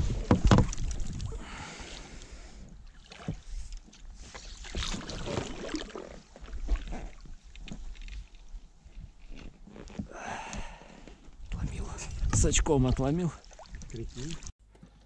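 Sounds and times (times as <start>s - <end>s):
water splashing and sloshing: 0.0s - 10.1s, 10.8s - 14.6s
knocks against rubber boat: 0.1s - 0.8s.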